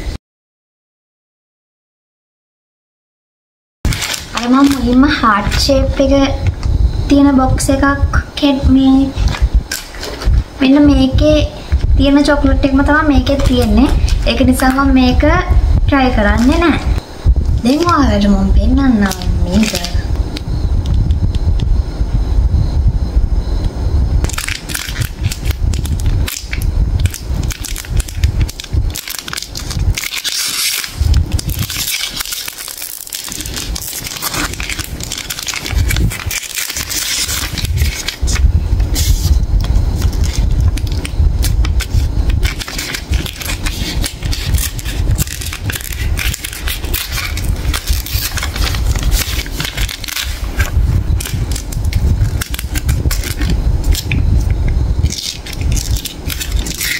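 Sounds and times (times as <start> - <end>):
wrapper tearing: 3.9 - 5.7, 9.2 - 10.4, 19.0 - 20.0, 24.3 - 54.4, 55.0 - 56.9
foil crinkling: 3.9 - 6.7, 8.5 - 17.0, 17.6 - 21.1, 24.2 - 56.9.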